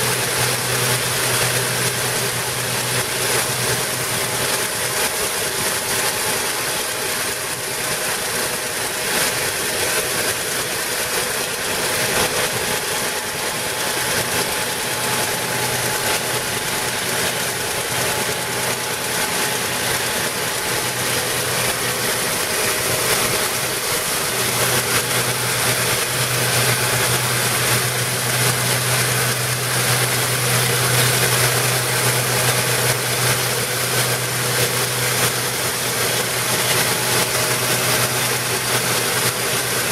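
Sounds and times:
truck engine humming: 11.8s - 37.9s.

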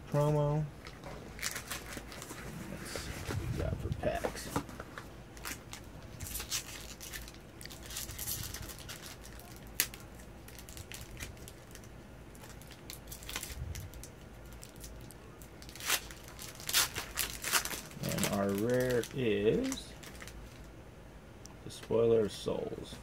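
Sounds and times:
foil wrapper tearing and crinkling: 0.8s - 2.4s, 5.4s - 20.7s.

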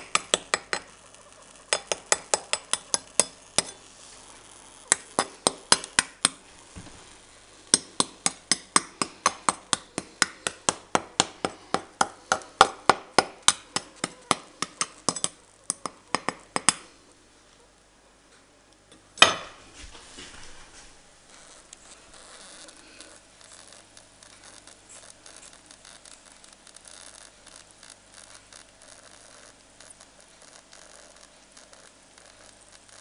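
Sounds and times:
knife tapping crisp pork crackling: 0.0s - 3.9s, 4.8s - 6.4s, 7.7s - 16.9s.

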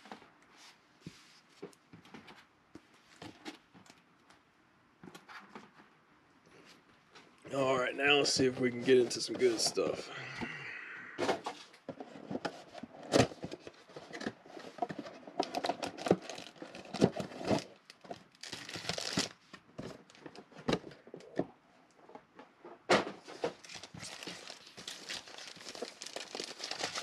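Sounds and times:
foil packs crinkling: 15.4s - 19.4s, 23.4s - 27.0s.

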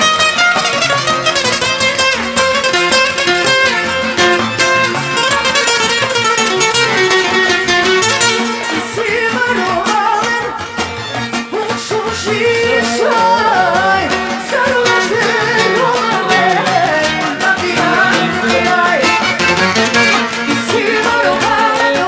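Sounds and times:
band music: 0.0s - 22.0s
person singing: 6.8s - 22.0s
accordion fast runs: 13.0s - 21.8s.

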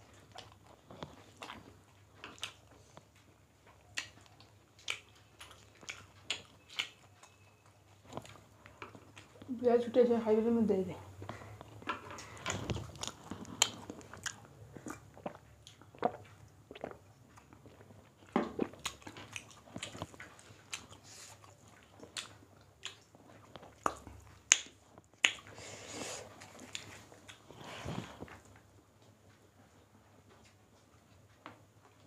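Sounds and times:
chewing and mouth clicks: 0.0s - 9.5s, 11.2s - 32.0s.

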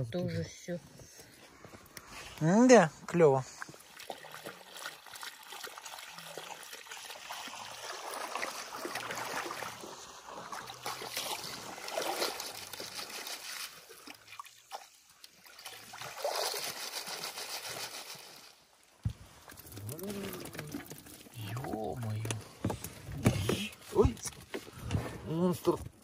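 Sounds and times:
water sloshing through basket: 3.5s - 18.4s, 19.2s - 24.9s.

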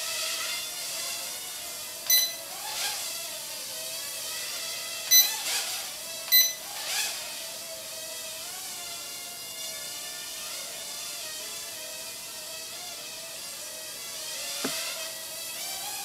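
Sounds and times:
short electronic beeps: 2.1s - 2.4s, 5.1s - 5.4s, 6.3s - 6.6s.

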